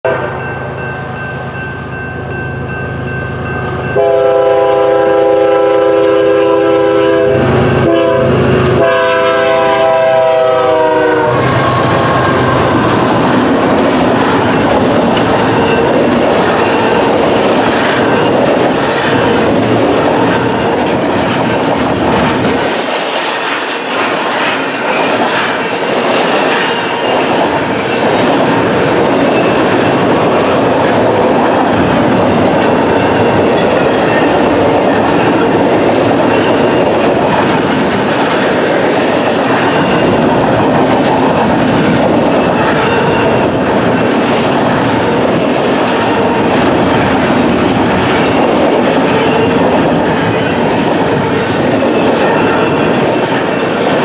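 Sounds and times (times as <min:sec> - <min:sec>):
locomotive air horn: 0:00.0 - 0:00.5, 0:04.0 - 0:12.8
train wheels rumbling on rails: 0:00.0 - 0:54.0.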